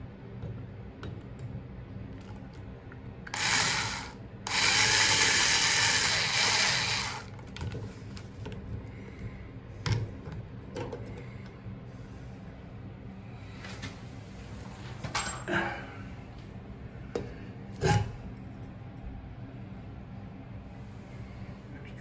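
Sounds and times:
electric screwdriver whirring: 0:03.3 - 0:07.3.

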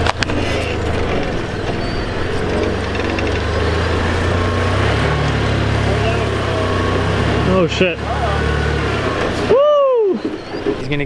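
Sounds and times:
truck engine at low revs: 0:00.0 - 0:11.0.

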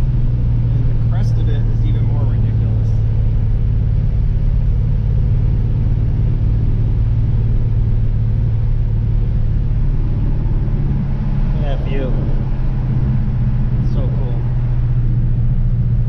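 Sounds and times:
vehicle engine drone: 0:00.0 - 0:16.0.

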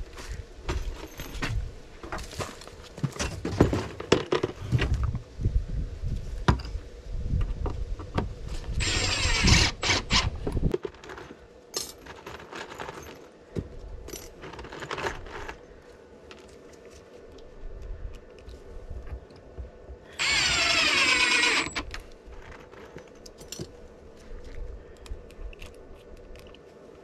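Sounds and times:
cordless drill driving screw: 0:08.8 - 0:10.4, 0:20.2 - 0:22.0.

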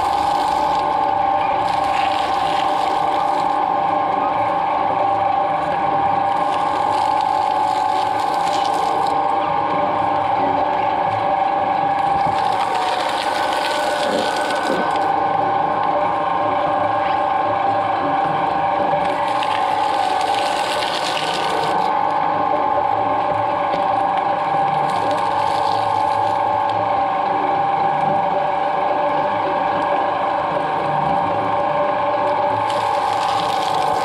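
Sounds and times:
shredder crackling and crunching: 0:00.0 - 0:03.6, 0:06.4 - 0:09.2, 0:12.1 - 0:15.2, 0:19.0 - 0:21.9, 0:32.6 - 0:34.0
shredder motor whine: 0:00.0 - 0:34.0.

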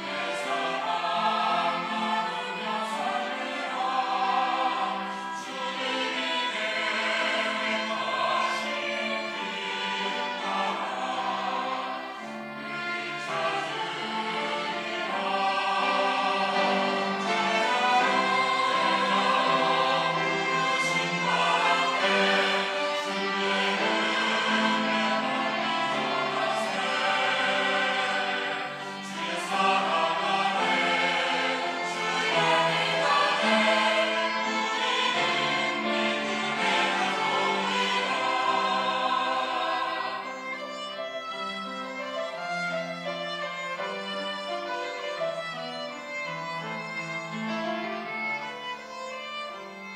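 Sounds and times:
choir singing: 0:00.0 - 0:49.9
string accompaniment: 0:00.0 - 0:49.9.

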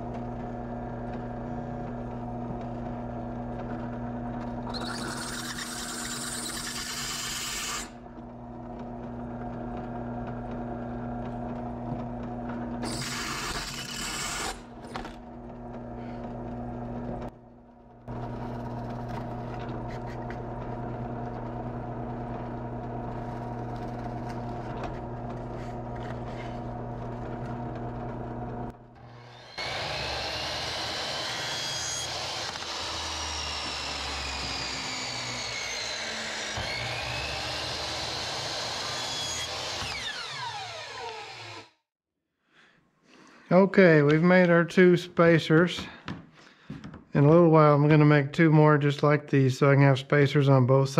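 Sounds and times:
drilling plywood: 0:00.0 - 0:17.3, 0:18.0 - 0:41.8
drill press motor hum: 0:00.0 - 0:41.9
drill bit grinding through steel: 0:04.6 - 0:08.0, 0:12.8 - 0:15.0, 0:29.0 - 0:41.8
miter saw whining: 0:04.6 - 0:08.0, 0:12.8 - 0:15.2, 0:29.0 - 0:41.8.

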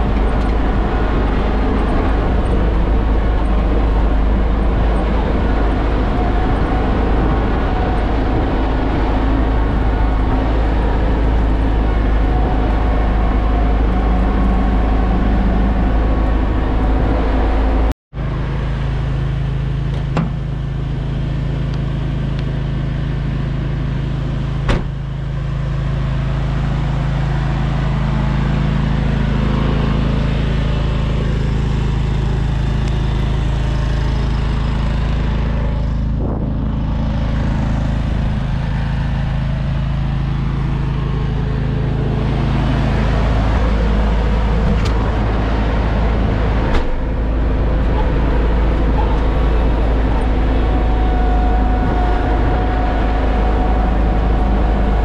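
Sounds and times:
diesel tractor engine idling: 0:00.0 - 0:55.0.

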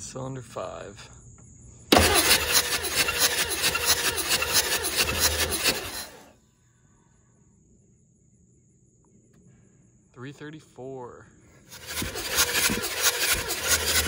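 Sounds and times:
diesel engine cranking on starter: 0:01.9 - 0:06.3, 0:11.7 - 0:14.0.

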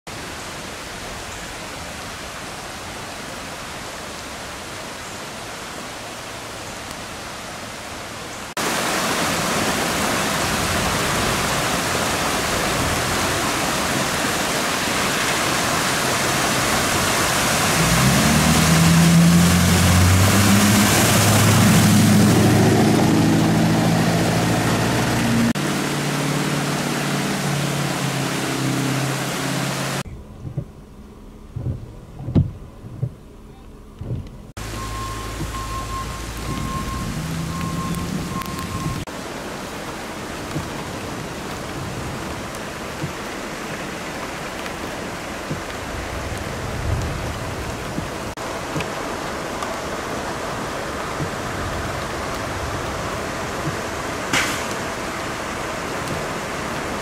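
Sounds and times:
flood water rushing: 0:00.1 - 0:30.1, 0:34.5 - 0:57.0
rain: 0:00.1 - 0:57.0
low engine hum: 0:16.2 - 0:57.0
pickup truck engine: 0:17.6 - 0:39.1.

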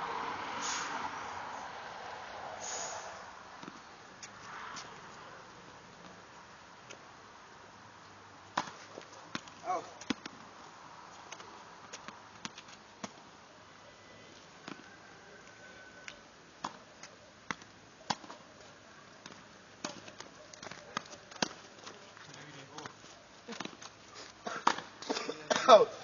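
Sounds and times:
tennis ball bouncing on court: 0:08.5 - 0:10.4.

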